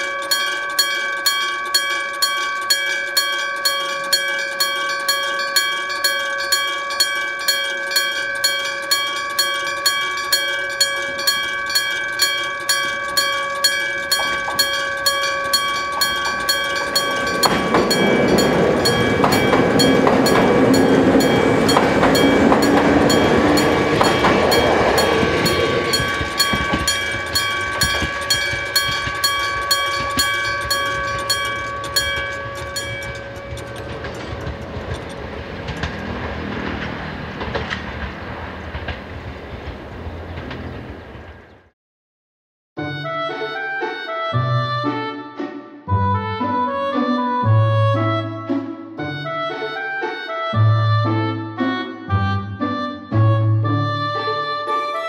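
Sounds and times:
railway crossing bell ringing: 0:00.0 - 0:39.0
electric train passing: 0:00.0 - 0:41.7.

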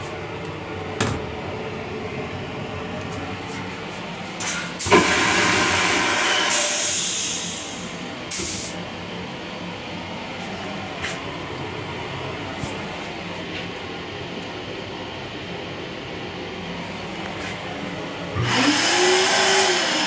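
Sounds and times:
moving railcar running noise: 0:00.0 - 0:20.0
toilet flushing: 0:04.4 - 0:08.9, 0:18.2 - 0:20.0.

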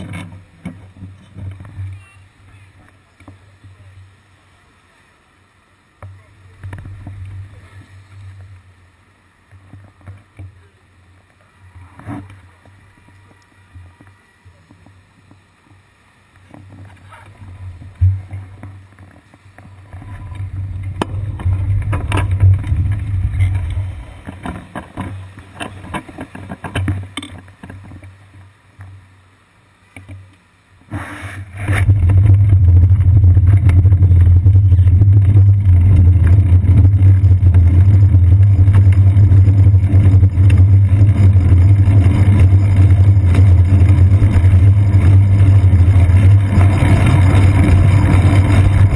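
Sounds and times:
wind and road vibration rumble: 0:00.0 - 0:48.9.

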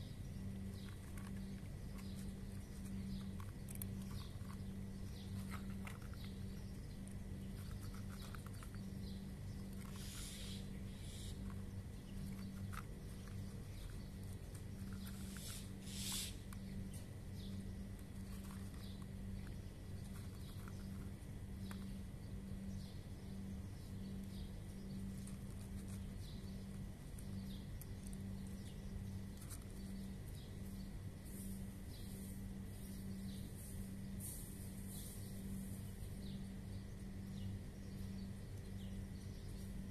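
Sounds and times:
low mechanical hum: 0:00.0 - 0:39.9
cats crunching dry kibble: 0:00.2 - 0:36.2
rustle: 0:00.7 - 0:08.8, 0:09.6 - 0:21.9, 0:24.9 - 0:36.3.

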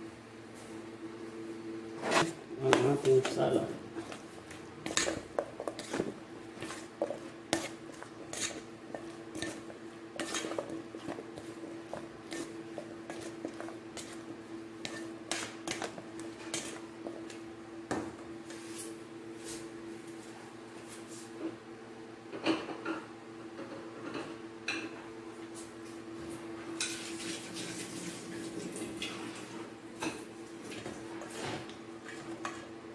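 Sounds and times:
utensil scraping metal bowl: 0:04.8 - 0:17.2.

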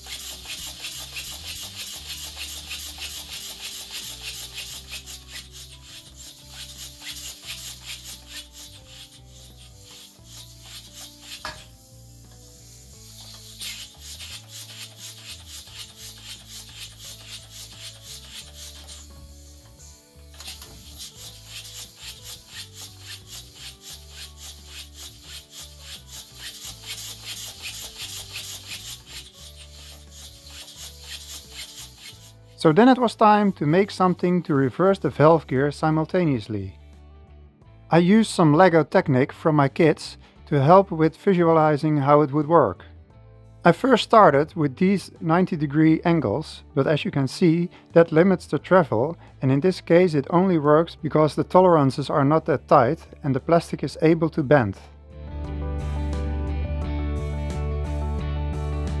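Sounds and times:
steam engine exhaust hissing: 0:00.0 - 0:33.1
background music: 0:00.0 - 0:59.0.

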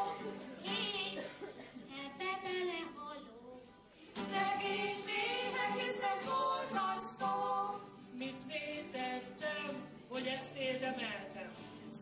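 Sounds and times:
two people singing: 0:00.0 - 0:00.9, 0:04.2 - 0:12.0
acoustic guitars: 0:00.0 - 0:12.0.

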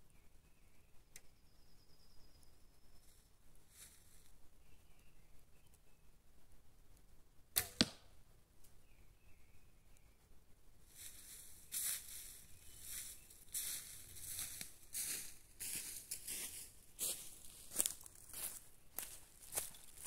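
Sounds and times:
footsteps crunching dry leaves: 0:10.9 - 0:20.0.

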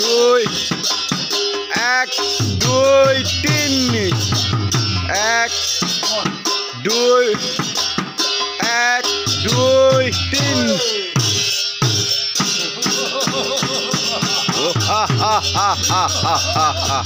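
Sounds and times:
drum beat: 0:00.0 - 0:17.0
swooping melody: 0:09.4 - 0:11.2.

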